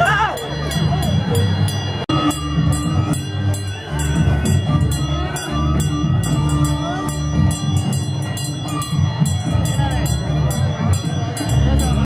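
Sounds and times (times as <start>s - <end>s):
crowd voices: 0.0s - 12.0s
heavy pounding drums: 0.0s - 12.0s.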